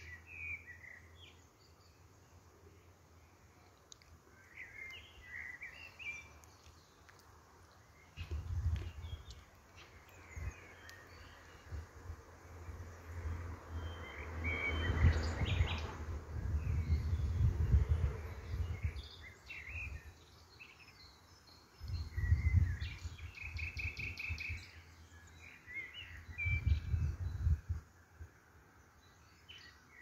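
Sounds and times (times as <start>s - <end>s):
small birds chirping: 0.0s - 28.0s, 28.8s - 30.0s
low rumble on microphone: 14.4s - 19.1s, 21.8s - 23.2s, 26.3s - 27.8s.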